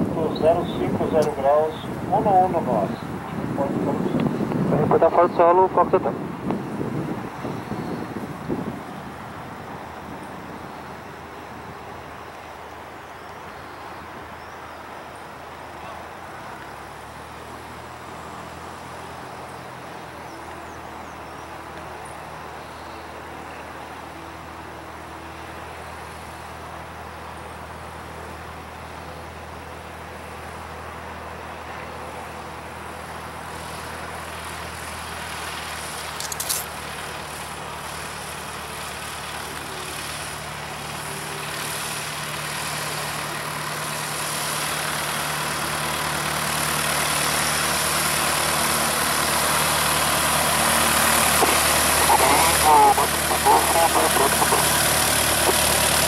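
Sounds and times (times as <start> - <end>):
small plane engine taxiing: 0.0 - 56.0
sharp click: 36.2 - 36.7.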